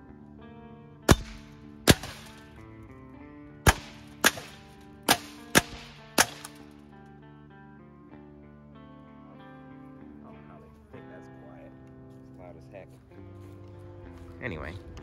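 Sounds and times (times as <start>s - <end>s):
background music: 0.0s - 15.0s
muffled rifle shots: 1.1s - 2.6s, 3.6s - 6.9s.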